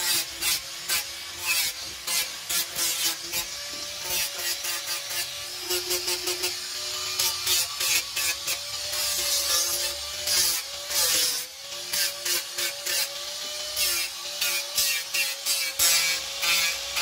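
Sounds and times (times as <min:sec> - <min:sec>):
angle grinder motor whine: 0:03.2 - 0:11.9.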